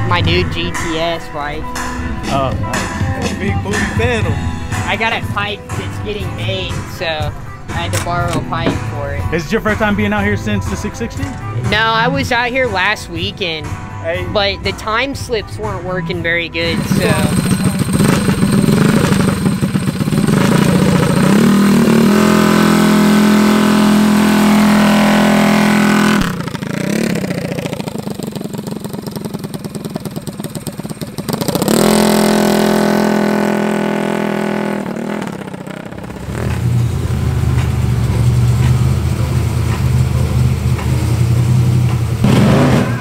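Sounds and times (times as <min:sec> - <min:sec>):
deeper engine running steadily: 0:00.0 - 0:43.0
minibike engine revving: 0:16.6 - 0:43.0.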